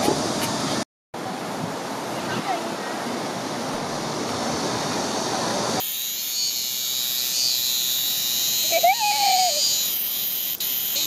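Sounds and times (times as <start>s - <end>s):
dense steady rushing noise: 0.0s - 5.8s
cicadas singing: 3.3s - 11.0s.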